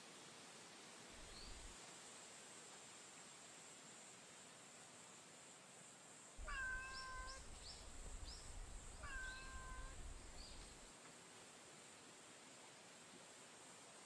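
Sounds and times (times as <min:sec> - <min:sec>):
cat meowing: 0:06.4 - 0:07.5, 0:09.0 - 0:10.1.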